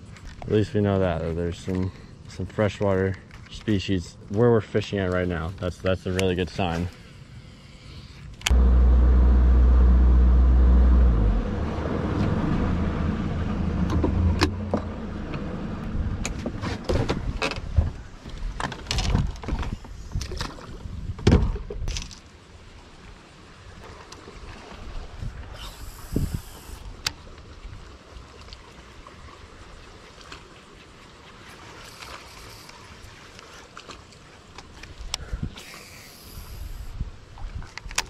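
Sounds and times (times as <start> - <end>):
boat motor humming: 8.5 - 16.8.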